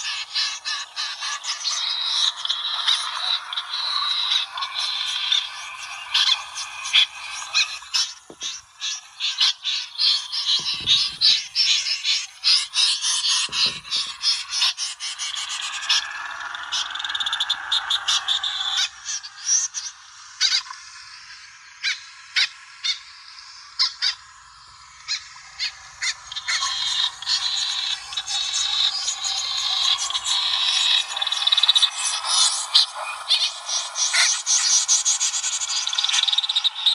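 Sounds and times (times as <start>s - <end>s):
snipe calls: 0.0s - 16.1s
low thumps: 10.6s - 11.4s.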